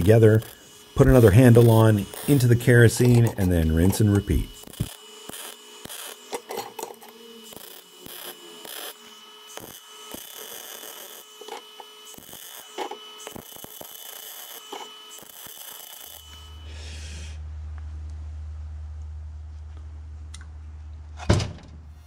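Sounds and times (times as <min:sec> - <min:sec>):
welding arc bursts: 0:00.0 - 0:17.4.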